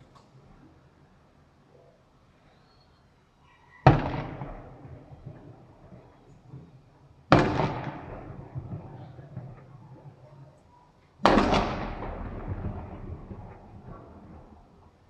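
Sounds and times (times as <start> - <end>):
fireworks loud bangs: 3.8 - 5.4, 7.3 - 10.3, 11.2 - 14.6
rumbling echo: 7.3 - 10.3, 11.2 - 14.8.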